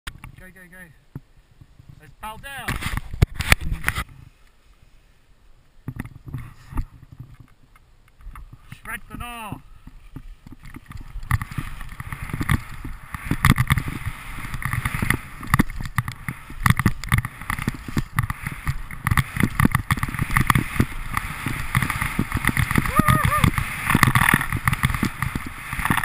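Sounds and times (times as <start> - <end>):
skis crunching on bumps: 8.2 - 26.0
skis scraping through snow: 8.4 - 26.0
wind on microphone: 9.6 - 26.0.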